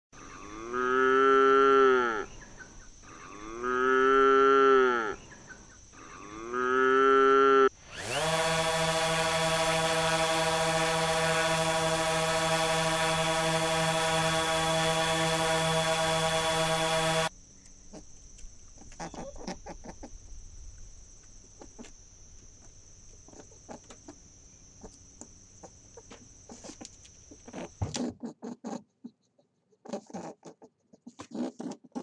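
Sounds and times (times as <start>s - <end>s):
calf mooing: 0.2s - 2.3s, 3.0s - 5.2s
steady mechanical buzz with hiss: 0.2s - 19.0s.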